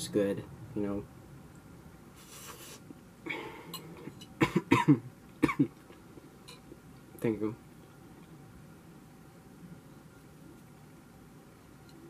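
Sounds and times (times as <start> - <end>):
man coughing: 4.4 - 5.8.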